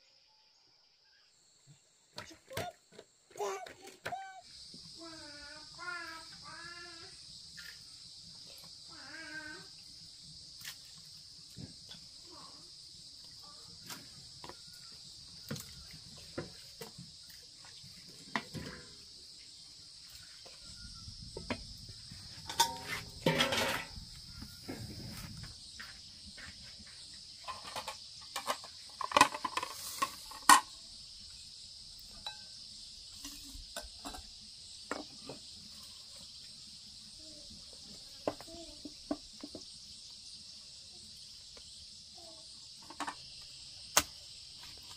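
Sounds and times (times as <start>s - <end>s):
high-pitched insect chorus: 0.0s - 44.9s
metal cookware clinking: 22.5s - 23.9s.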